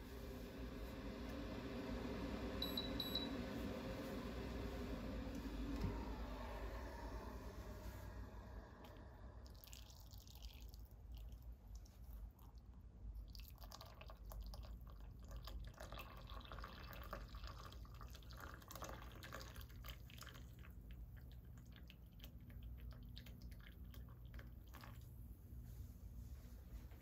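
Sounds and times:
soft drips: 8.8s - 25.8s
water pouring into a mug: 8.9s - 12.6s, 13.2s - 25.1s.

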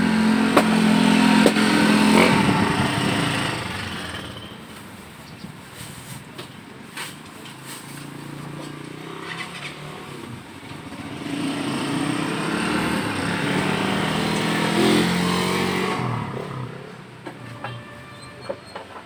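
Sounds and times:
motorcycle engine passing: 0.0s - 4.6s, 8.3s - 17.1s.

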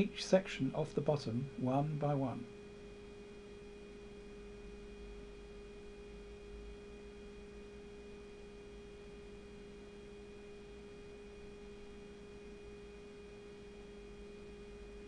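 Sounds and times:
low hiss: 0.0s - 5.8s
faint steady hum: 0.0s - 15.0s.

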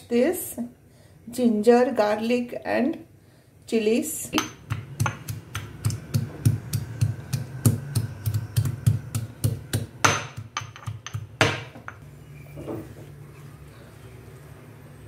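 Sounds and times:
pestle pounding in stone mortar: 4.4s - 12.0s.

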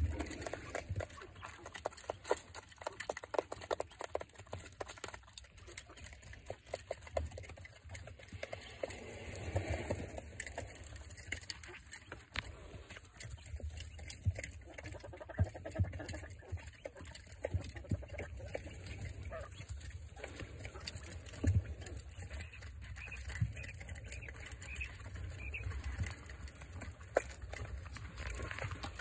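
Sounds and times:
quail pecking and scratching: 0.0s - 29.0s
soft bird calls: 11.5s - 26.9s.

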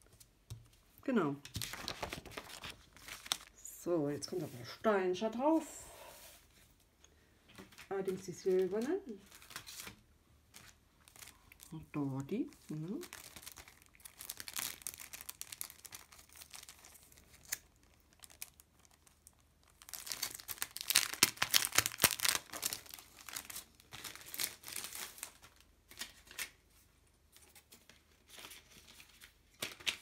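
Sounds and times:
plastic sheet crinkling: 1.4s - 4.8s, 7.6s - 26.6s.

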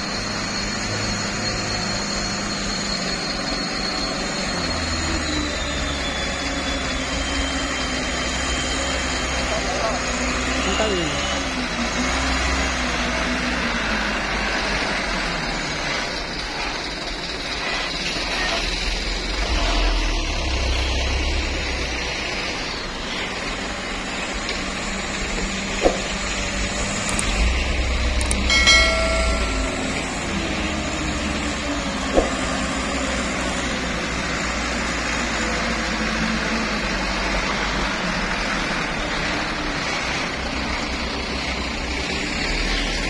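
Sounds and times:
diesel truck engines labouring: 0.0s - 43.0s
sharp clicks: 26.9s - 27.5s, 28.1s - 28.5s
brief pitched tone: 27.4s - 31.6s.

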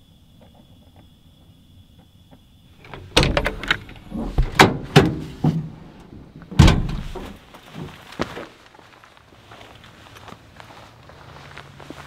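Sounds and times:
knocks and thumps: 2.8s - 8.0s
truck door clunking shut: 2.9s - 7.9s.

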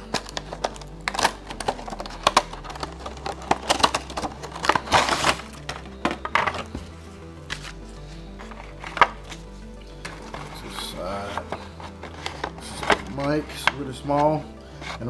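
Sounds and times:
cardboard box clicks and crackles: 0.0s - 6.9s
background music with bass line: 0.0s - 15.0s
plastic packaging crinkling: 0.0s - 15.0s.

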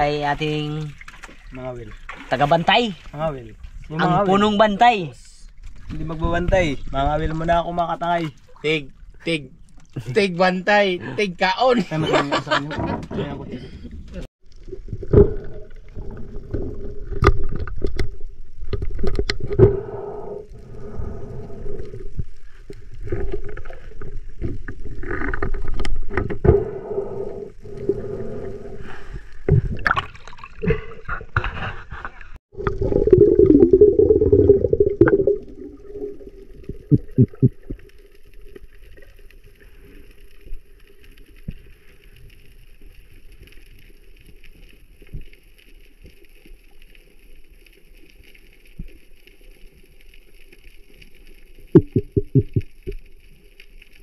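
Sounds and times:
underwater gurgling: 14.4s - 54.0s.

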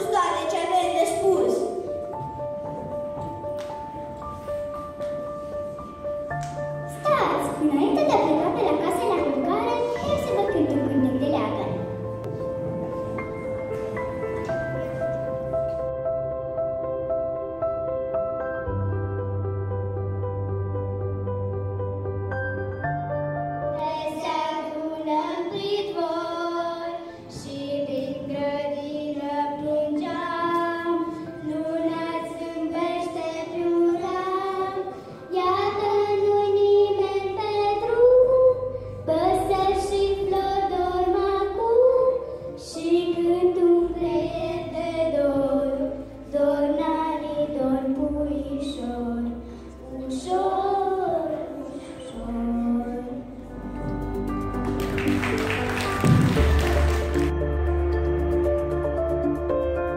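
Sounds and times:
girls singing folk song: 23.8s - 53.3s.

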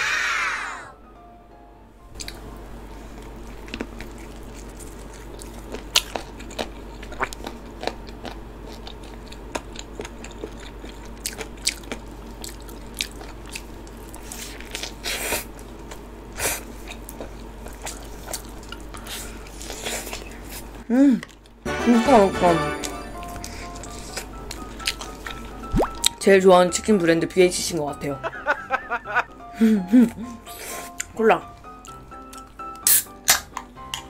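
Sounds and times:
crunching and chewing fried chicken: 2.2s - 21.6s, 23.4s - 26.2s, 30.2s - 34.0s.

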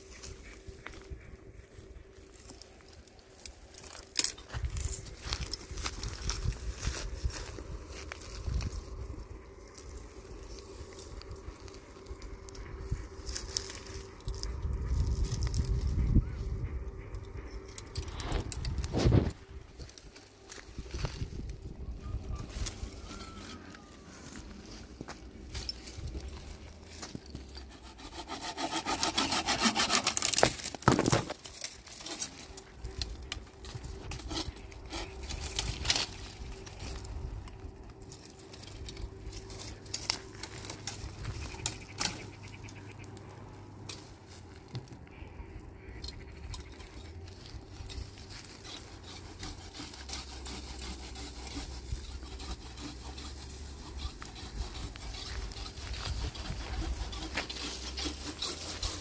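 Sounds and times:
sticks cracking and knocking: 2.4s - 8.8s, 22.5s - 45.1s
saw rasping through wood: 27.2s - 37.0s, 47.4s - 59.0s.

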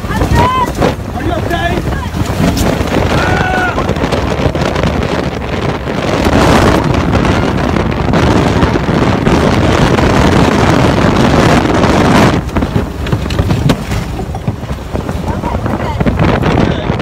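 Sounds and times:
wind buffeting microphone: 0.0s - 17.0s
debris knocking and rattling: 12.3s - 16.2s.

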